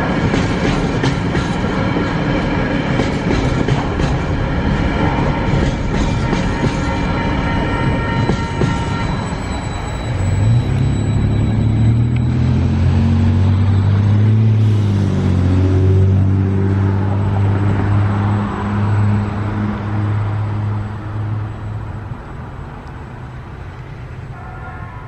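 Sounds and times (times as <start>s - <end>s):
train wagons rolling past: 0.0s - 25.0s
diesel engine drone: 9.3s - 24.5s.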